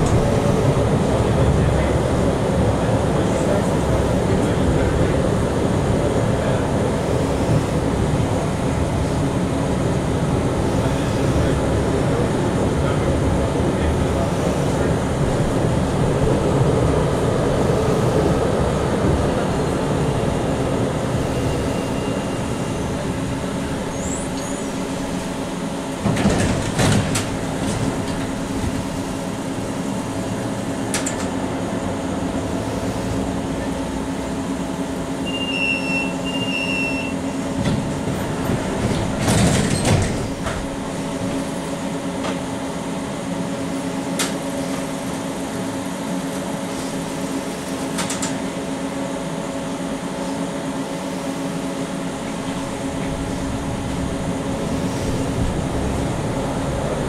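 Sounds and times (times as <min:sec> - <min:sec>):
tram running hum: 0:00.0 - 0:57.0
wheels clattering over track: 0:25.9 - 0:28.8, 0:37.6 - 0:40.7.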